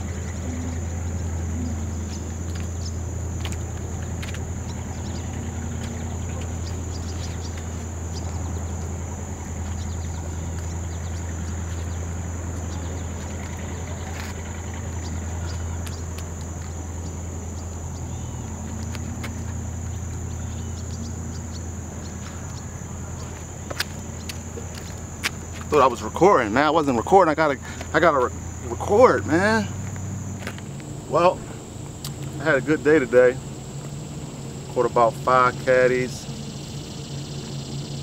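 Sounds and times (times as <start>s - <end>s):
low rumble: 0.0s - 25.7s
high-pitched insect drone: 0.0s - 38.0s.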